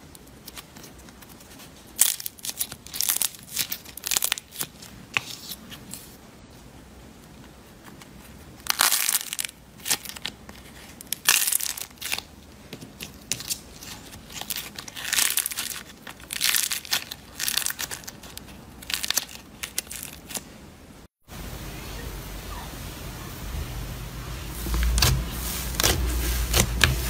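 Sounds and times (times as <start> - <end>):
slime crust crunching and crackling: 0.0 - 6.1, 8.4 - 20.5, 24.5 - 27.0.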